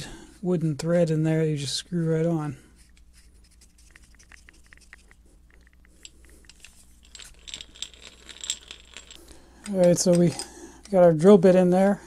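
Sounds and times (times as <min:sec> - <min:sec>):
wooden handle ticking and rubbing: 0:02.9 - 0:11.0
small metallic clinks: 0:04.1 - 0:11.1.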